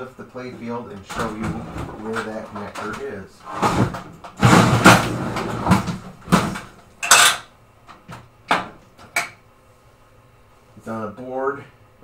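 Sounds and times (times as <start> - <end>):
pinball playfield scraping and clunking: 0.4 - 6.8
loud knock: 3.7 - 6.7.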